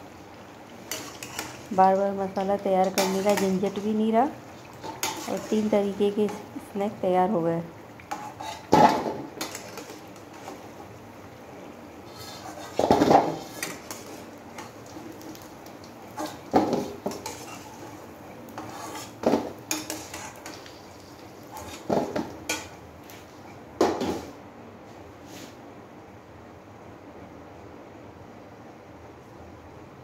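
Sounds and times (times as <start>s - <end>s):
metal skimmer scraping steel pot: 0.9s - 1.7s.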